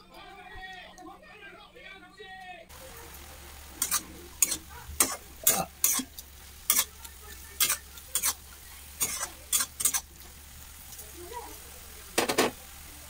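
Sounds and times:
soft sizzle of frying greens: 2.7 - 13.0
spatula scraping pan: 3.7 - 11.0.

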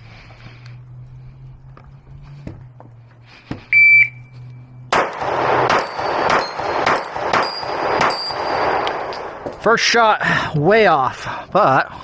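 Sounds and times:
shot timer beep: 3.7 - 4.3
pistol shots: 4.9 - 9.5
steel plates ringing: 5.8 - 8.7.

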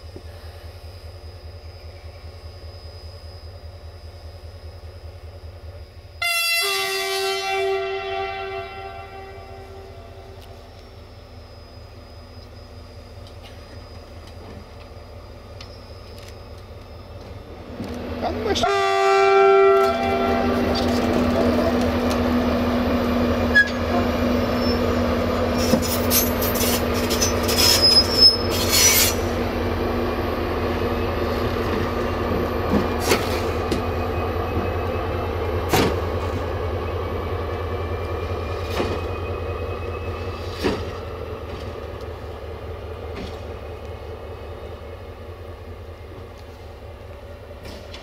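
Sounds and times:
locomotive horn: 6.2 - 10.6, 18.2 - 22.0
locomotive diesel engine running: 10.0 - 48.0
wheel squeal: 23.5 - 29.3.

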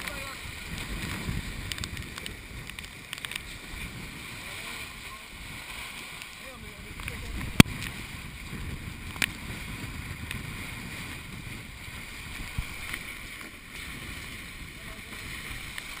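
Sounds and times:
rush of water: 0.0 - 16.0
wind noise: 0.0 - 16.0.

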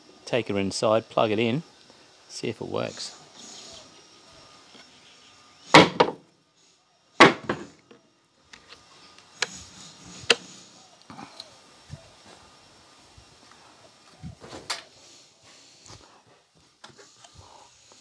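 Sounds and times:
loud wooden knocks: 5.8 - 6.2, 7.2 - 7.8.

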